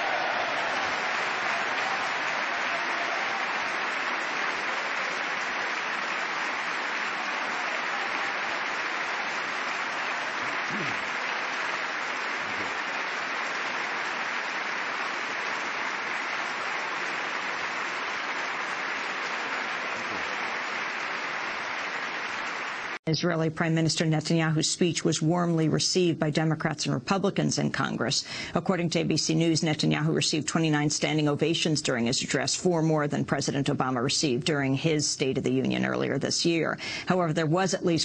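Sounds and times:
large crowd applauding: 0:00.0 - 0:23.0.

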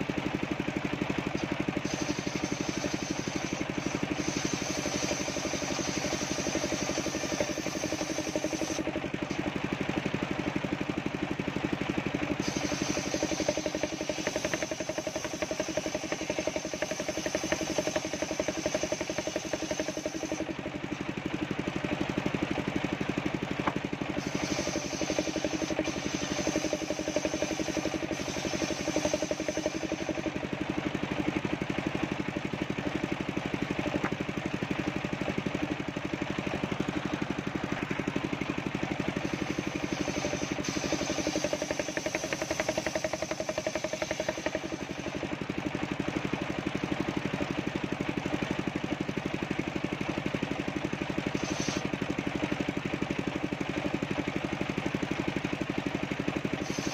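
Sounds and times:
circular saw cutting wood: 0:01.3 - 0:09.4, 0:12.3 - 0:20.5, 0:24.2 - 0:30.4, 0:39.1 - 0:45.3, 0:51.3 - 0:51.9, 0:56.6 - 0:56.9.

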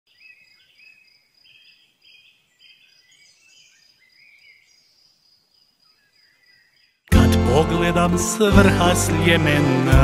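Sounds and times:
faint birdsong: 0:00.1 - 0:07.1.

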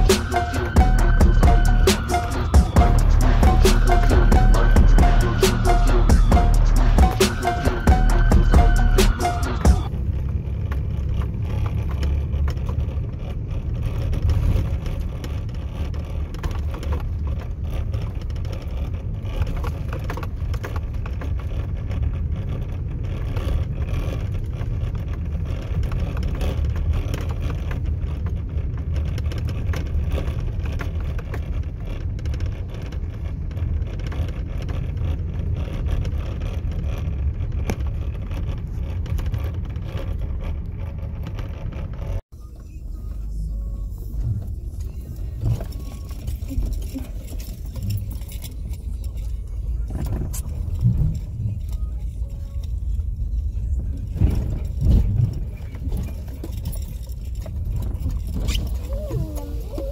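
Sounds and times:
engine and road rumble: 0:00.0 - 0:59.9
light clicks and rattles: 0:44.2 - 0:59.9.

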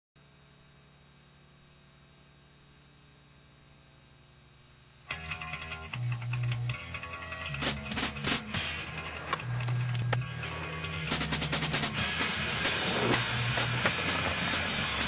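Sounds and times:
faint hum and hiss: 0:00.2 - 0:07.2.

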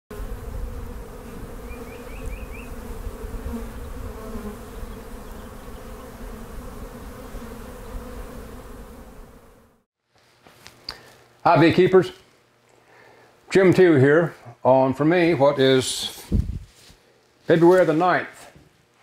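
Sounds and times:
bees buzzing: 0:00.1 - 0:09.8.

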